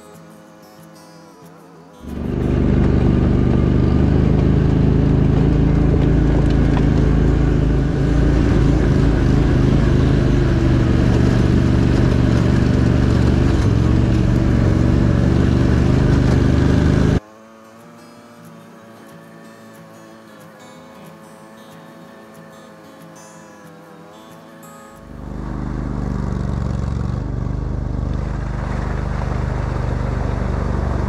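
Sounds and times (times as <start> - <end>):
vehicle engine droning: 2.0 - 17.3, 25.0 - 31.0.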